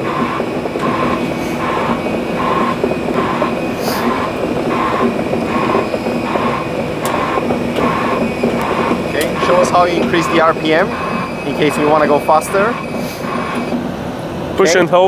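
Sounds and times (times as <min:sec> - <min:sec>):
machine engine running: 0:00.0 - 0:15.0
repeating electronic beep: 0:07.2 - 0:13.7.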